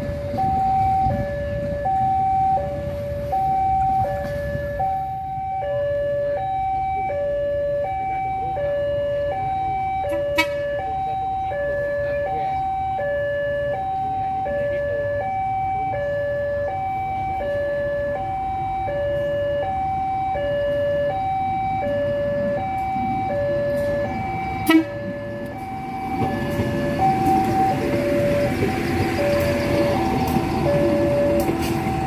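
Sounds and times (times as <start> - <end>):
train passing: 0.0 - 5.4, 16.6 - 32.0
level crossing two-tone alarm: 0.0 - 32.0.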